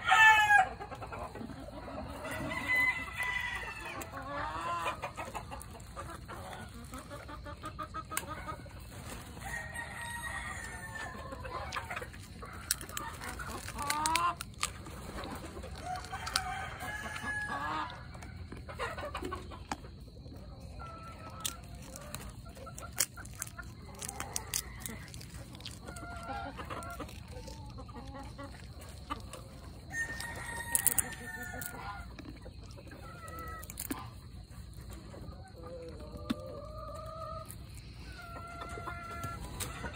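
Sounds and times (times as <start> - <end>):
chickens clucking: 0.0 - 39.9
sharp clicks and cracks: 12.5 - 16.5, 21.3 - 26.1.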